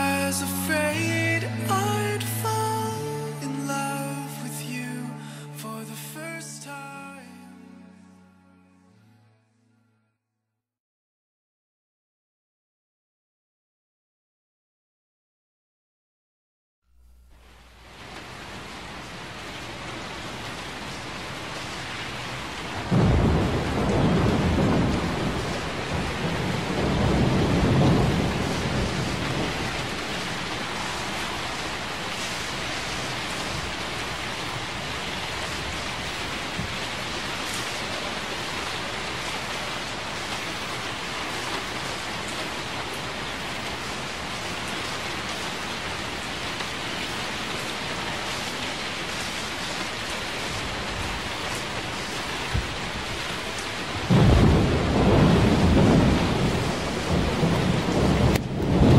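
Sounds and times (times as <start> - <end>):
steady rain falling: 0.0 - 6.6, 17.0 - 58.9
low rumble of thunder: 22.8 - 30.7, 54.0 - 58.9.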